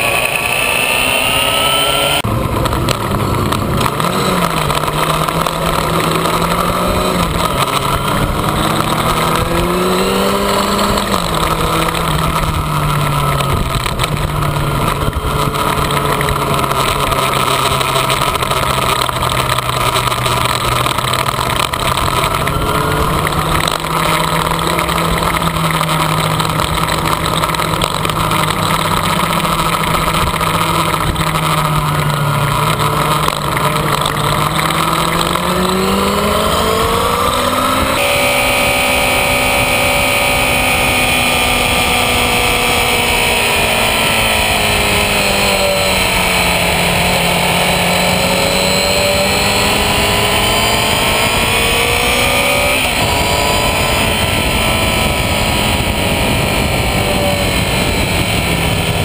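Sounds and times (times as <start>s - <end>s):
motorcycle engine running hard: 0.0s - 59.0s
wind and road rush: 0.0s - 59.0s.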